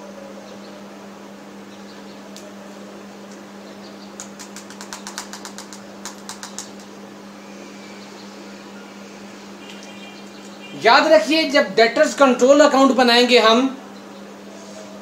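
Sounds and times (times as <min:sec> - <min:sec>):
rapid sharp clicks: 0:04.2 - 0:07.0.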